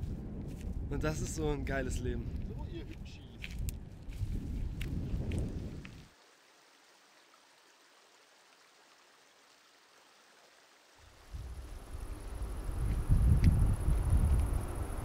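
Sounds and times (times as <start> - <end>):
faint steady hiss: 5.9 - 15.0.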